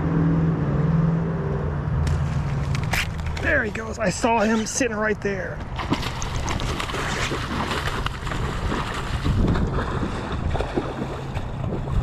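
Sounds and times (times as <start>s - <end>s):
wind buffeting microphone: 5.7s - 12.0s.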